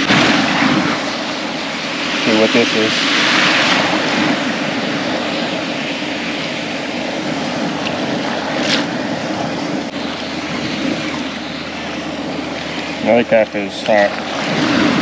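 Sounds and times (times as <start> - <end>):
surf breaking: 0.0 - 15.0.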